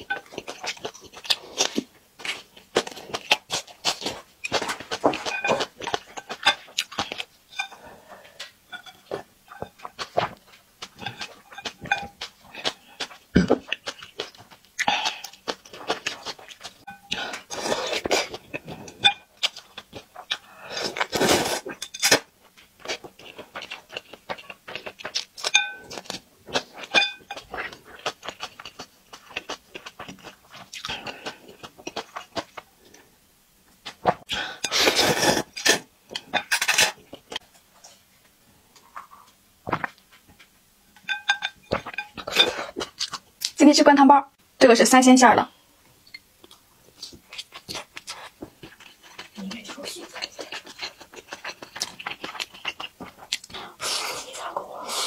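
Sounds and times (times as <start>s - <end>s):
slurping broth: 34.3s - 35.9s, 50.5s - 55.0s
wet chewing and lip smacking: 46.1s - 54.1s.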